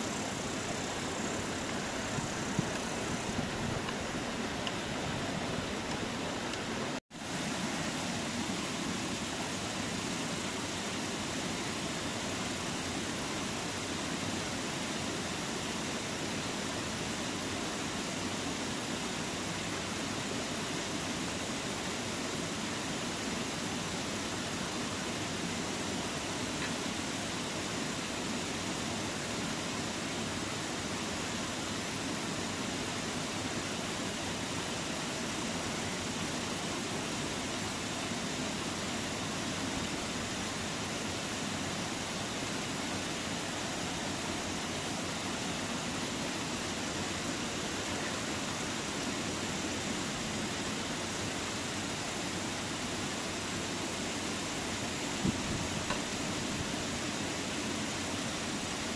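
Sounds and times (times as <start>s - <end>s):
stream rushing: 0.0s - 58.9s.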